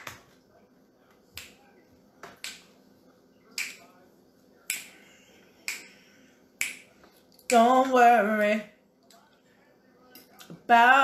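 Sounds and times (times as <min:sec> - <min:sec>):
finger snaps: 0:02.3 - 0:02.7, 0:03.5 - 0:03.8, 0:04.6 - 0:05.0, 0:05.6 - 0:05.9, 0:06.6 - 0:07.6.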